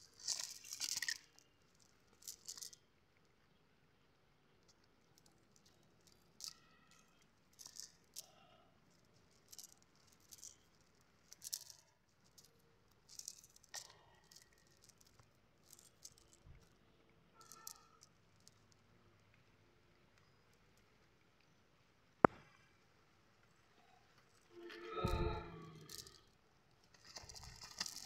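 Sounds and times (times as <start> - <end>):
nylon net rustling and crackling: 0.0 - 2.8, 26.8 - 28.0.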